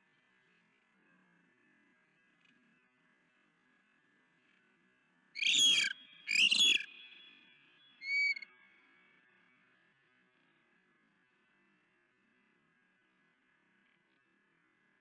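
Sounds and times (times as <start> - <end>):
osprey harsh alarm calls: 5.4 - 6.9
osprey thin whistled call: 5.4 - 7.3, 8.0 - 8.5.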